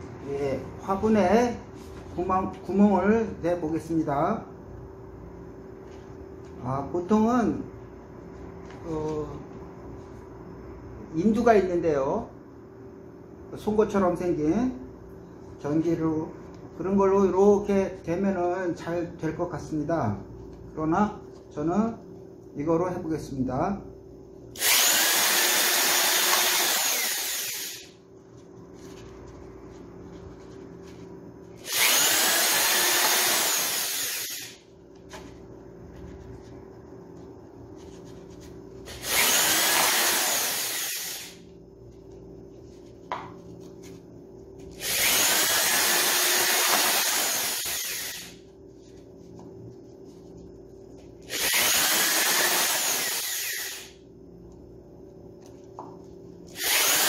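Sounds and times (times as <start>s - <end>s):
electric drill boring plastic: 24.6s - 27.9s, 31.6s - 34.6s, 38.9s - 41.4s, 44.8s - 48.4s, 51.3s - 54.0s, 56.5s - 57.0s.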